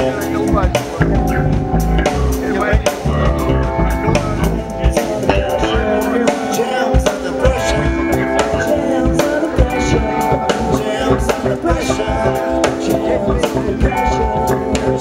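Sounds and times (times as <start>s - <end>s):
drum kit: 0.0s - 15.0s
electric bass: 0.0s - 15.0s
man singing into microphone: 4.8s - 15.0s.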